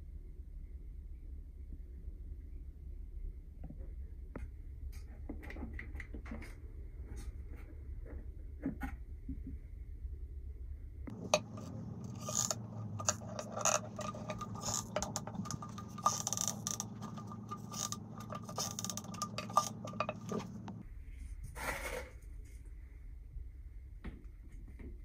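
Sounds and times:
steady low hum: 0:10.6 - 0:21.2
stones clicking and scraping: 0:11.1 - 0:20.8.

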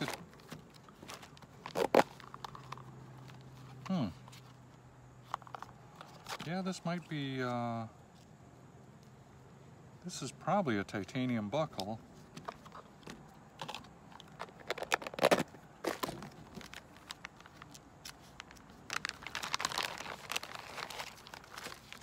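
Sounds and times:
plastic bags crinkling: 0:00.0 - 0:03.6, 0:13.6 - 0:22.0.

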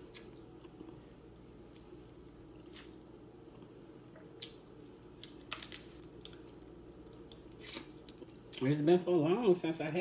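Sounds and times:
low steady hum: 0:00.0 - 0:10.0
crab shells cracking: 0:04.3 - 0:08.2.

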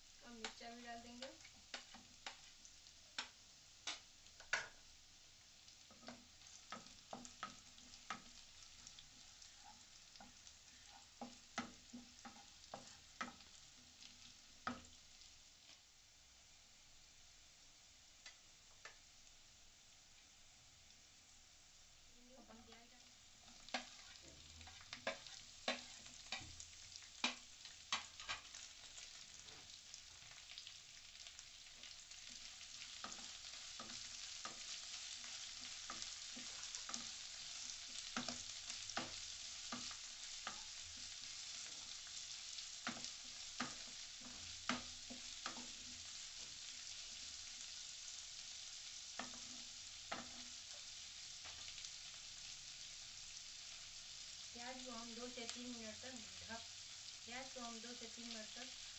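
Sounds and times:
onions sizzling in hot oil: 0:00.0 - 0:58.9
wooden spatula clacking on pan: 0:01.3 - 0:02.5, 0:03.2 - 0:04.8, 0:05.9 - 0:09.0, 0:09.6 - 0:13.6, 0:14.6 - 0:15.0, 0:23.5 - 0:29.6, 0:31.7 - 0:46.5, 0:49.2 - 0:51.8.

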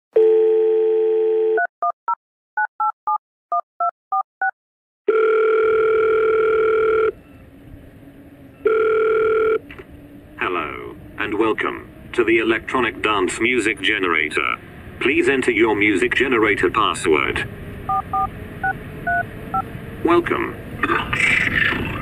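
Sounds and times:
phone ringing tone: 0:00.2 - 0:01.7, 0:05.1 - 0:07.2, 0:08.6 - 0:09.7
telephone dial tone: 0:00.2 - 0:01.7, 0:05.1 - 0:07.2, 0:08.6 - 0:09.7
touch-tone keypad beeps: 0:17.9 - 0:19.2.

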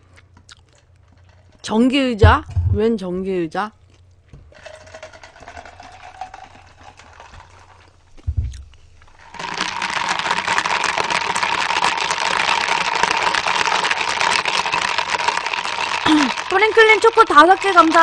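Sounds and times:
thud: 0:02.2 - 0:02.9, 0:08.2 - 0:08.7.

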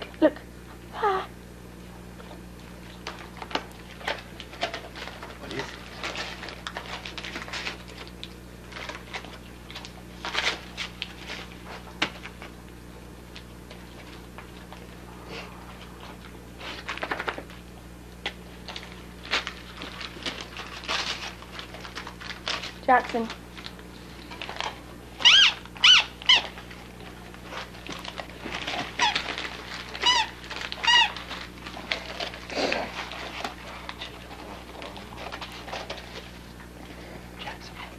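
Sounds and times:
steady low hum: 0:00.0 - 0:37.9
foil paper crinkling: 0:02.3 - 0:37.9
squeaky dog toy squeaking: 0:25.2 - 0:26.4.

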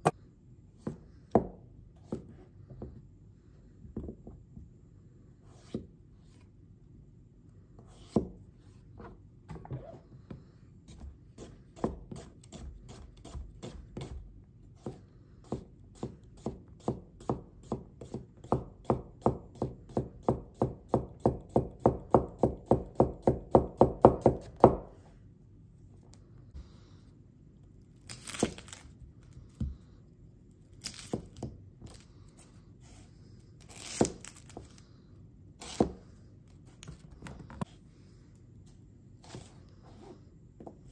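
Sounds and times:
knife slicing carrot: 0:35.6 - 0:36.1.

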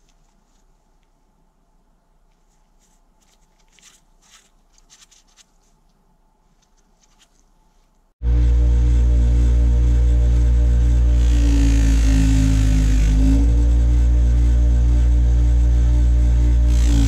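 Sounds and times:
soft rustles and light clicks: 0:00.0 - 0:08.2
loud steady humming sound: 0:08.2 - 0:17.0.

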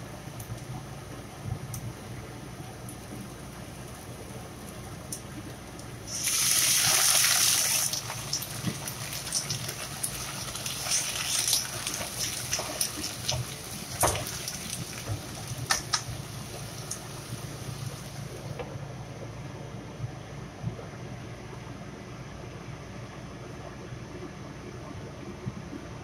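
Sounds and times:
liquid hissing in a hot pan: 0:06.0 - 0:18.4
vegetables sizzling in a frying pan: 0:06.0 - 0:18.4.

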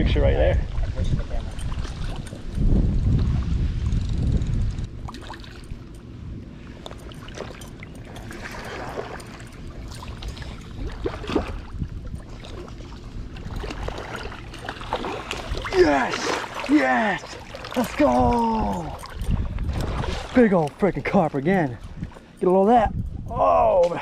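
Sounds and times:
wind buffeting microphone: 0:00.0 - 0:24.0
water sloshing and splashing: 0:00.7 - 0:03.8, 0:04.9 - 0:23.0.

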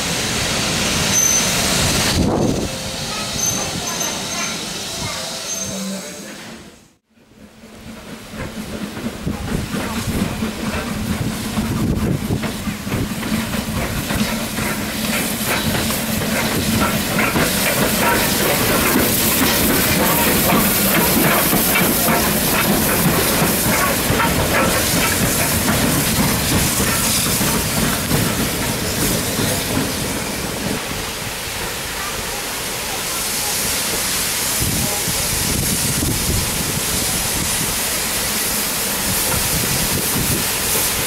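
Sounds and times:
steam hissing: 0:00.0 - 0:06.8, 0:09.2 - 0:41.0
locomotive wheels clattering: 0:07.9 - 0:30.8.

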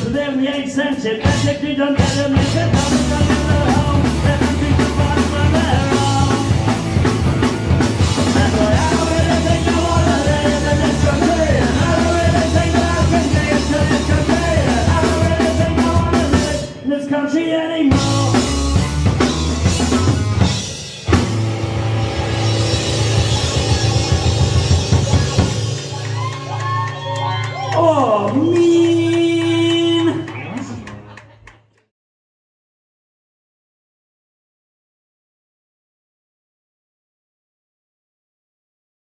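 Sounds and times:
punk rock band playing: 0:00.0 - 0:29.2.

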